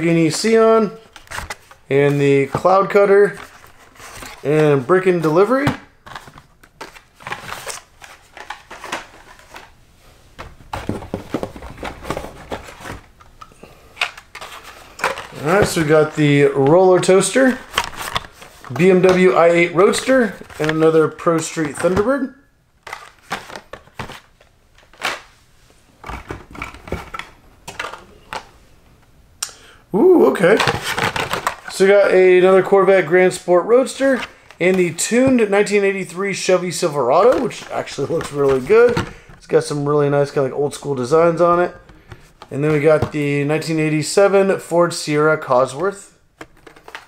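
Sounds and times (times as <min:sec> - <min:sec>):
plastic and cardboard packaging crinkling: 0:06.0 - 0:09.7, 0:14.0 - 0:21.0, 0:30.3 - 0:32.7, 0:46.4 - 0:47.0.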